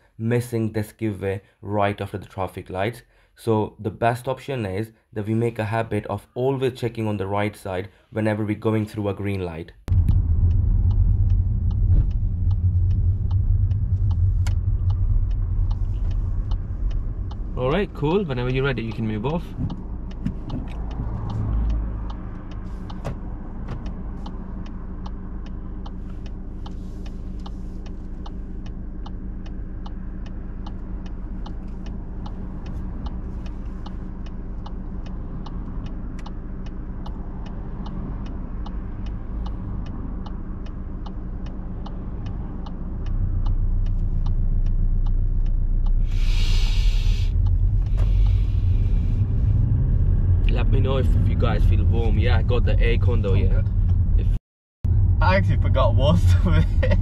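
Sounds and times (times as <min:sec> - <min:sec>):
car engine idling: 0:09.9 - 0:57.0
turn indicator ticking: 0:09.9 - 0:57.0
brief hiss: 0:46.0 - 0:47.3.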